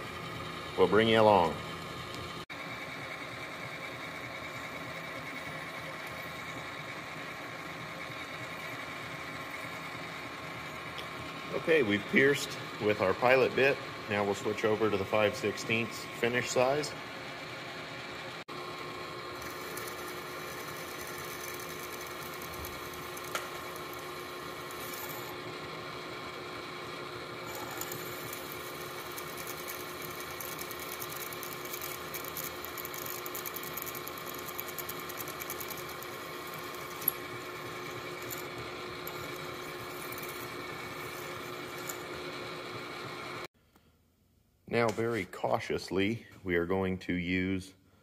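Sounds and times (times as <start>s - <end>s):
milling machine drilling whine: 18.5s - 43.5s.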